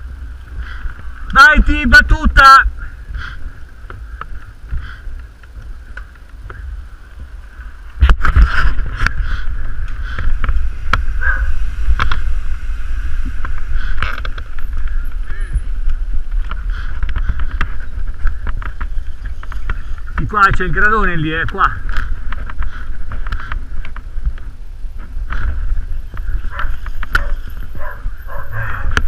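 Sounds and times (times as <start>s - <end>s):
wind rumble on microphone: 0.0s - 29.0s
bike rattling over stone paving: 3.2s - 28.5s.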